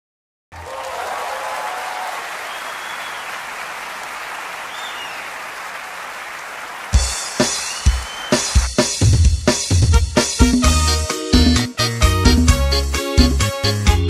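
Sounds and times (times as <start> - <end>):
crowd applauding: 0.5 - 8.8.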